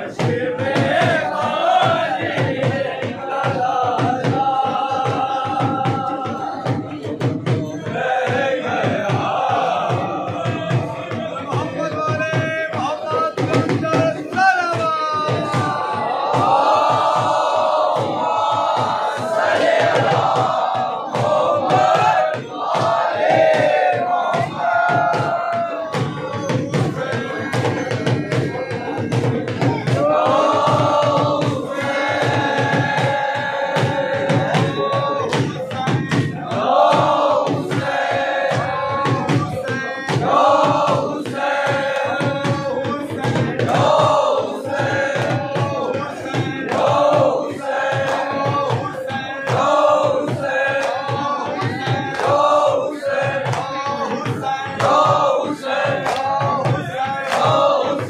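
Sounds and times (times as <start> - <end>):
men chanting in unison: 0.0 - 58.0
hands slapping bare chests: 49.6 - 51.1, 55.9 - 56.6.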